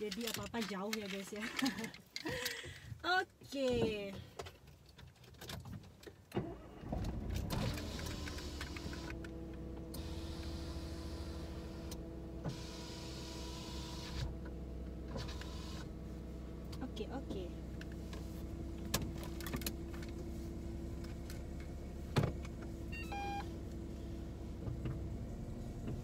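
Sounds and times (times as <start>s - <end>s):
car engine starting and running: 6.0s - 26.0s.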